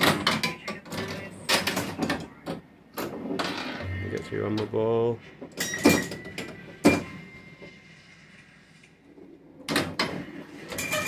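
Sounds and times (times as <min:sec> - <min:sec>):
pinball electronic tone: 0:03.4 - 0:04.7, 0:05.6 - 0:07.9
pinball machine clacks: 0:05.5 - 0:07.2.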